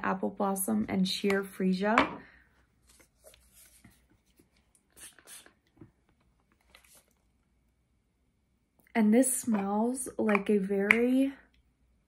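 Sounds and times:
person sniffing: 5.0s - 5.6s.

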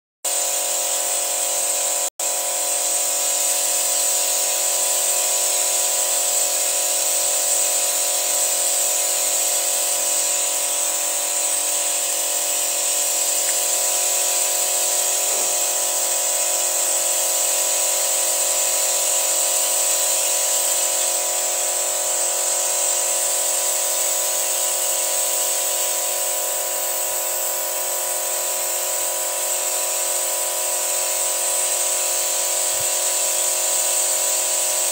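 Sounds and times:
steady hiss: 2.6s - 26.2s.

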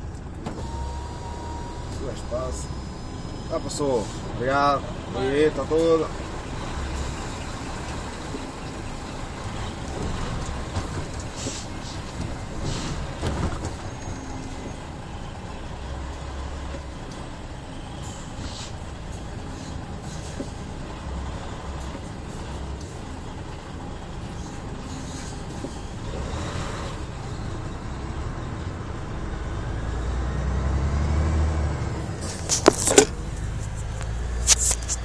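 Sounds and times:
diesel truck engine rumble: 0.0s - 35.0s
road noise: 0.0s - 35.0s.

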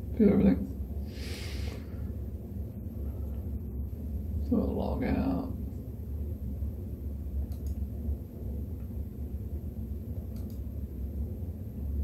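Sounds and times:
low background rumble: 0.0s - 12.0s
faint clicks: 7.5s - 7.8s, 10.3s - 10.6s.

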